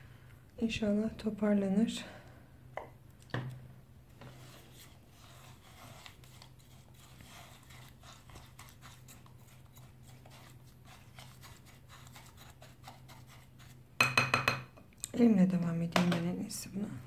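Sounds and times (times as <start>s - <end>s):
spoon stirring slime in glass bowl: 4.3s - 14.8s.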